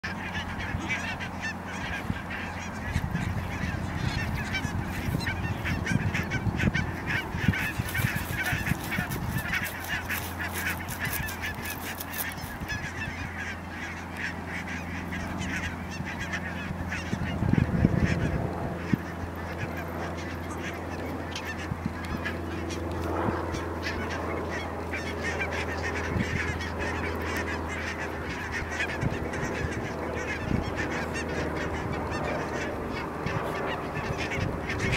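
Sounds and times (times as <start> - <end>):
flock of geese calling: 0.0 - 34.9.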